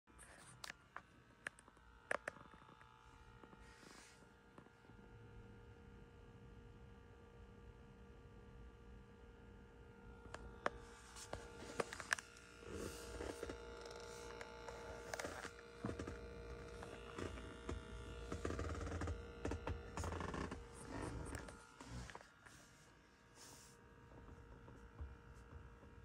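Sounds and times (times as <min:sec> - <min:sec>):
electrical buzz: 0:10.1 - 0:22.6
phone handling clicks and rustling: 0:10.4 - 0:12.4.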